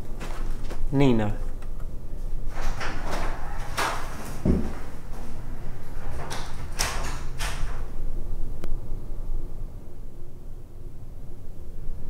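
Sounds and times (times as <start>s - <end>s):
door opening: 2.5s - 8.0s.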